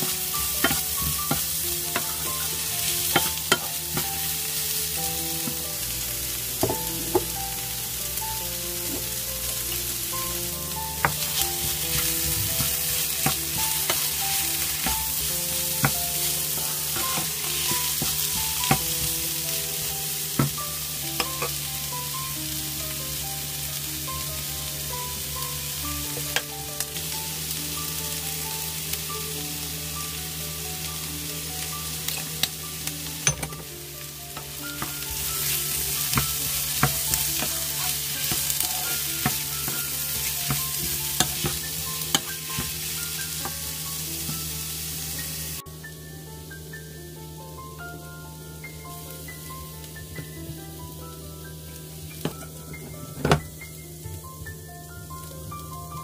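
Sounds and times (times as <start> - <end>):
wooden spatula stirring: 0.0 - 20.6, 34.3 - 44.7
vegetables sizzling in oil: 0.0 - 56.0.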